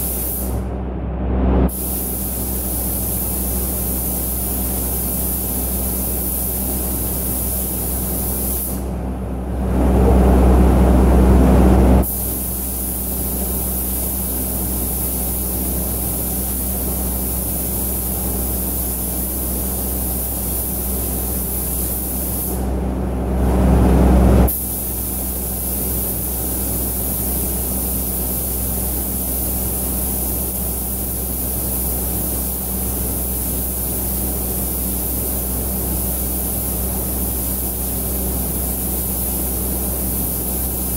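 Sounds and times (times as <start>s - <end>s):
paint spray gun hissing: 0.0s - 0.5s, 1.7s - 8.8s, 12.0s - 22.6s, 24.5s - 40.9s
deep air rush: 0.0s - 6.3s, 6.9s - 13.3s
extraction fans droning: 0.0s - 21.5s, 22.5s - 26.8s.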